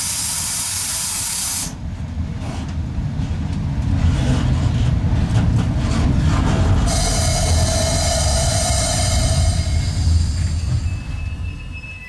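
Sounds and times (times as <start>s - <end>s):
compressed air hiss: 0.0s - 1.8s, 6.9s - 10.9s
locomotive rumbling along track: 1.8s - 12.0s.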